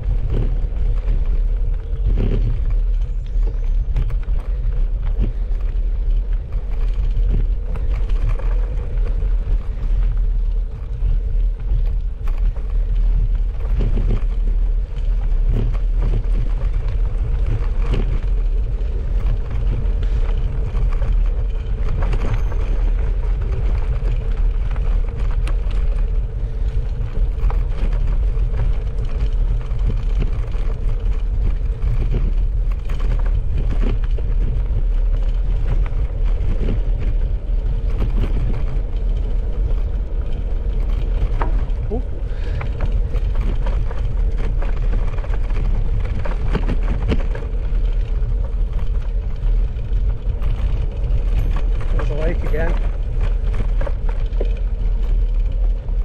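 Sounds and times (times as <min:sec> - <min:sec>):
bicycle clicks and rattles: 0:00.0 - 0:56.0
bicycle rumbling on gravel: 0:00.0 - 0:56.0.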